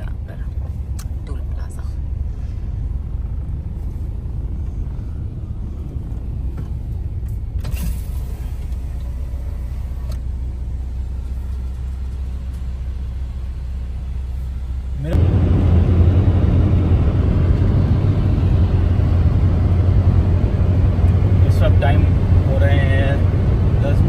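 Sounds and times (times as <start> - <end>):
car engine and tyres rumbling: 0.0 - 24.0.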